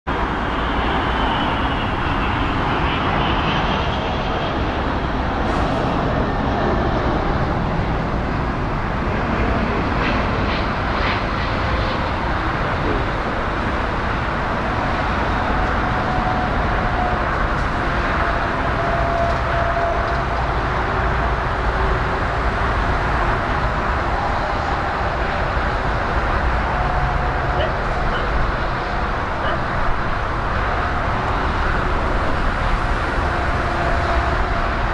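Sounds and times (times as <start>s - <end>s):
jet engines roaring: 0.1s - 34.9s.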